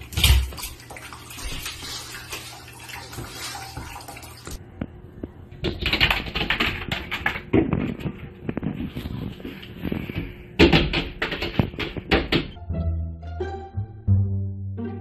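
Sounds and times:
cat splashing water in bowl: 0:00.0 - 0:04.6.

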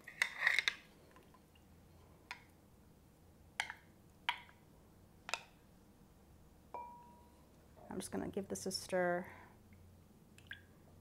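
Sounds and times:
knocks with glassy ring: 0:06.8 - 0:07.3.

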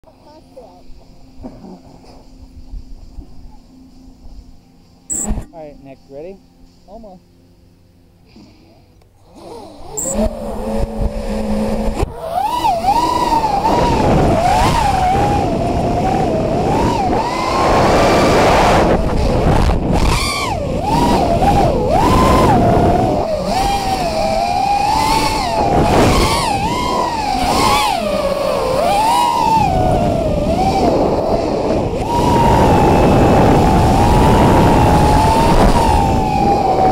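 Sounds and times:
drone motors whining: 0:00.2 - 0:06.3, 0:08.2 - 0:36.9
rush of air: 0:09.4 - 0:36.9.

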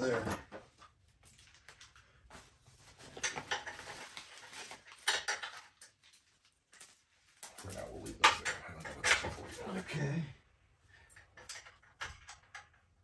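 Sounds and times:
metal bolts clinking and rattling: 0:06.7 - 0:09.6, 0:11.1 - 0:13.0.

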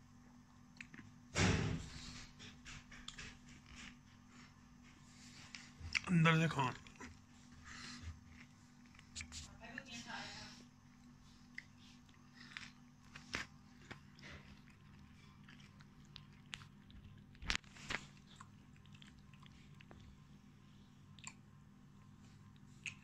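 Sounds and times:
cat chewing and smacking: 0:10.9 - 0:23.0.

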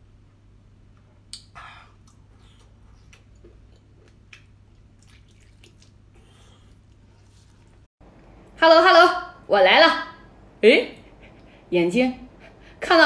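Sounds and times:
wet chewing clicks and smacks: 0:01.3 - 0:07.8.

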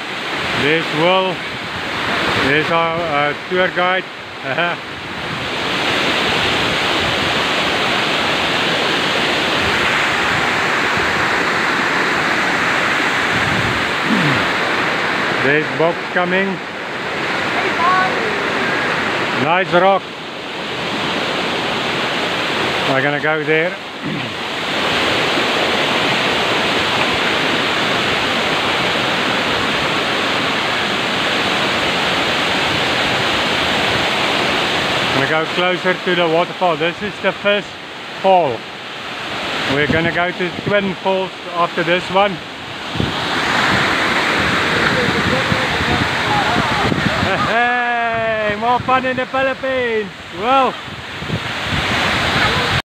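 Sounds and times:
waterfall rushing into pool: 0:00.0 - 0:52.8.

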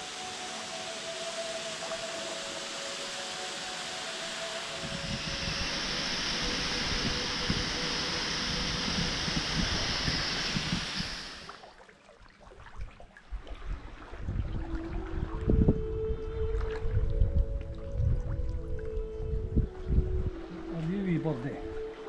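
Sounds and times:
waterfall rushing onto rocks: 0:00.0 - 0:11.6.

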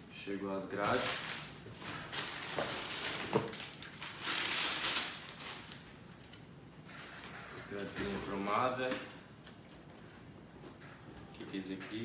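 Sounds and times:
plastic bag rustling and crinkling: 0:00.7 - 0:06.0.

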